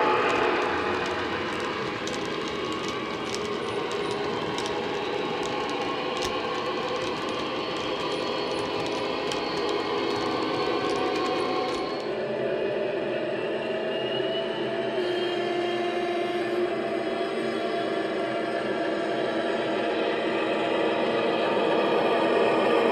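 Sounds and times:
model wagon wheels clicking: 0.0s - 12.1s.

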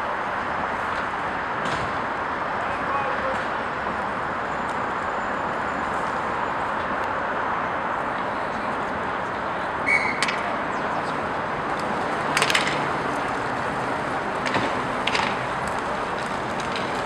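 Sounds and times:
skate wheels rolling: 0.0s - 17.0s
hockey sticks and puck clacking: 9.9s - 10.6s, 11.7s - 17.0s.

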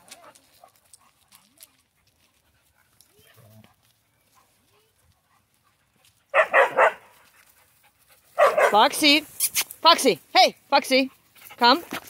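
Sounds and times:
dog barking: 6.3s - 7.1s, 8.4s - 8.9s.

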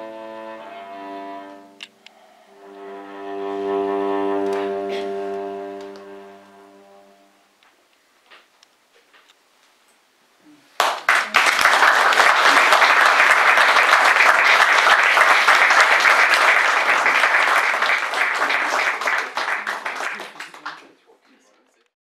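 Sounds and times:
audience applauding: 10.8s - 21.2s.

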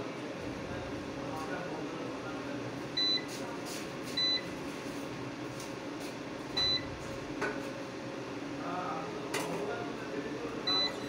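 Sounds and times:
short high beeps: 10.7s - 11.0s.

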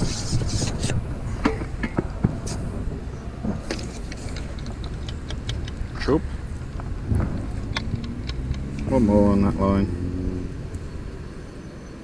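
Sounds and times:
low outdoor rumble: 0.0s - 12.0s
fishing tackle clicks and knocks: 3.6s - 6.0s, 6.8s - 8.9s.

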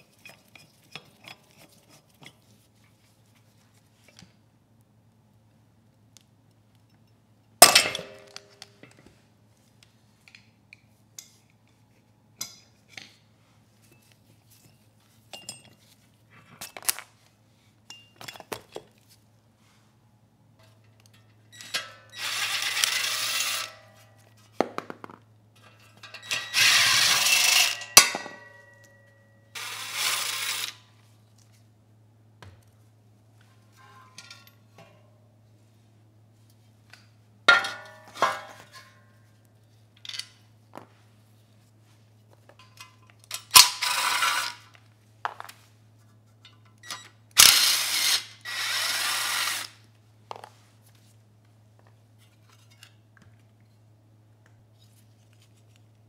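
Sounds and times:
clinks of tools and parts: 13.8s - 17.2s, 17.8s - 19.1s, 25.6s - 26.7s, 27.6s - 29.4s, 33.4s - 35.1s, 36.9s - 40.9s, 42.3s - 45.6s, 46.4s - 47.2s, 52.2s - 53.5s.

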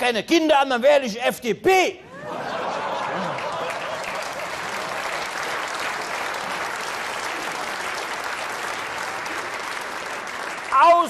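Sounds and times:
audience applauding: 2.2s - 11.0s.

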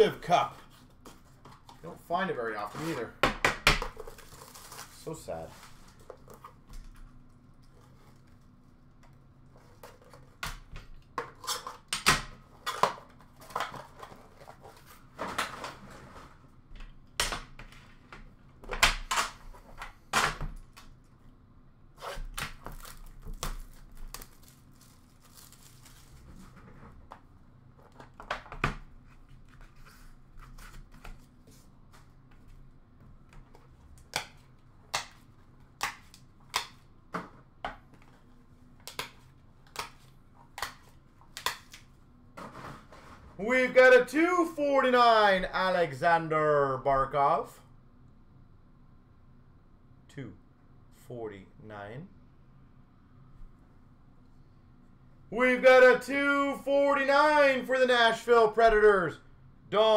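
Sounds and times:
packaging wrap tearing and crinkling: 22.0s - 26.3s.

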